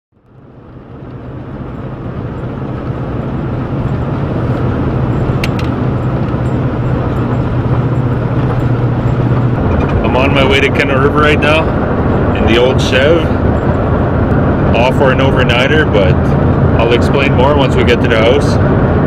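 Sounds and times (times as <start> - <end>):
car engine drone: 0.1 - 19.0
road noise: 0.1 - 19.0.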